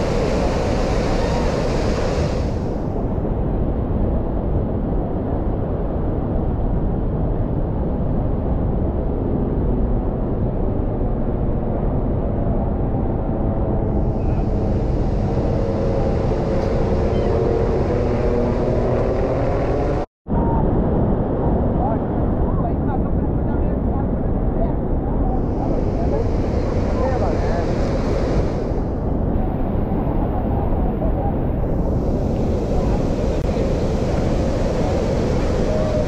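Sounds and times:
waterfall roaring: 31.8s - 36.0s.

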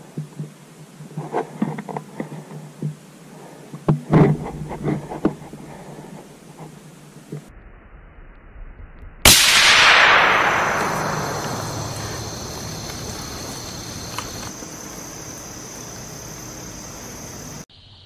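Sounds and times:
rifle shot crack: 9.3s - 14.5s.

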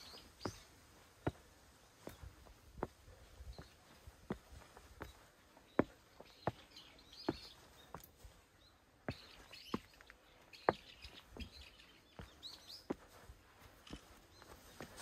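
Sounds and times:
small birds chirping: 0.0s - 15.0s
footsteps walking: 9.1s - 15.0s.

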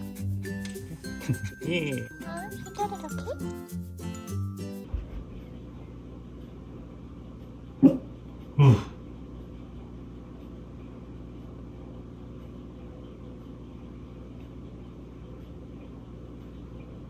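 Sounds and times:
low steady hum: 0.0s - 17.0s
small dog barking: 7.8s - 8.2s.

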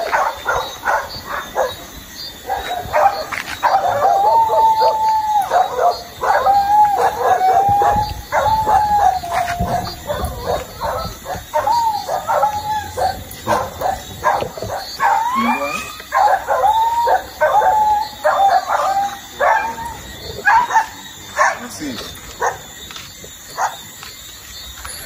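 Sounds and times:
dog whining and yelping: 2.5s - 21.5s.

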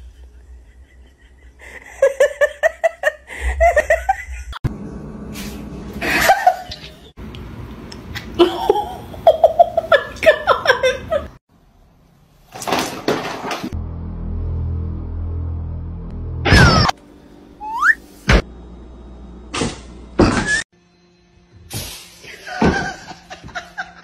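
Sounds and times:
person laughing: 0.0s - 4.6s, 6.0s - 7.0s, 8.4s - 11.4s.

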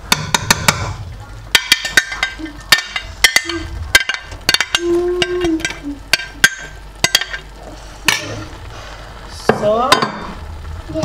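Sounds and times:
utensil clinking on metal pot: 0.1s - 7.5s.

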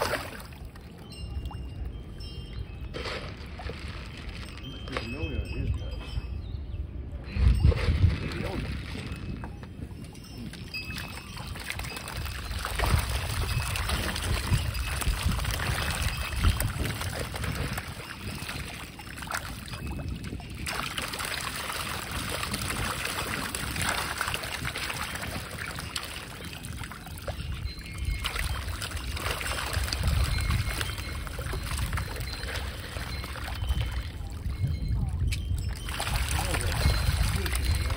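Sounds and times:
fish splashing at water surface: 0.0s - 1.0s, 10.2s - 34.7s, 35.4s - 37.9s.

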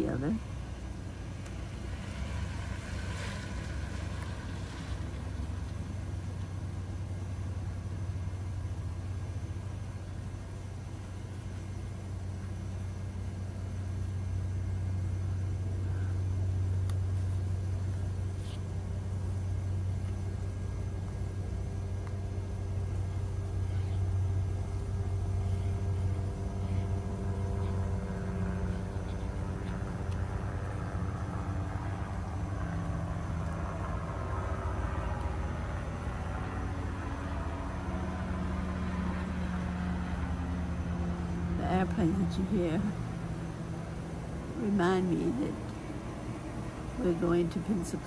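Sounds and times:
airplane engine rumble: 0.0s - 48.0s.

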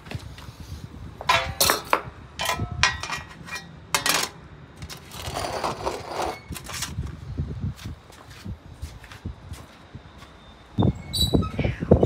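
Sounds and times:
metal tray clanking on stone: 1.3s - 4.4s
metal rattling scrape: 1.3s - 7.0s.

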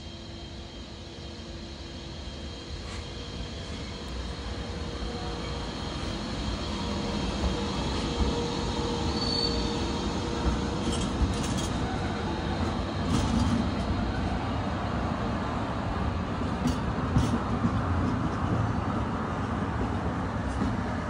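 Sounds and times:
train wheels rumbling on rail: 0.0s - 21.0s
high wheel squeal: 8.9s - 9.8s.

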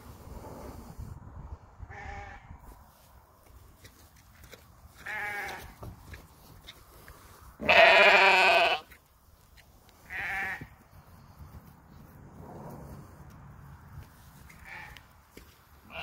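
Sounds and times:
lamb bleating: 5.0s - 5.8s, 7.6s - 9.0s, 10.1s - 10.7s, 14.5s - 15.0s.

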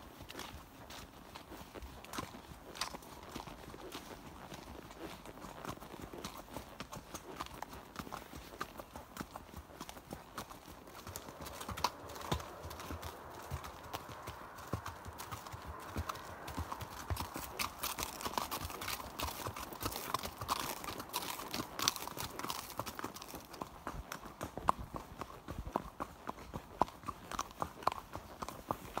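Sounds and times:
horse hooves on gravel: 0.0s - 29.0s.

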